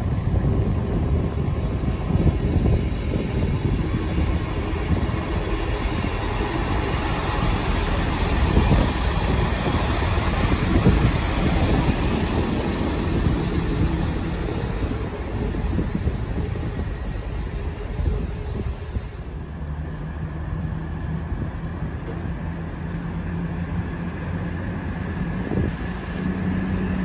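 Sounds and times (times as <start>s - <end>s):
diesel train passing: 0.0s - 27.0s.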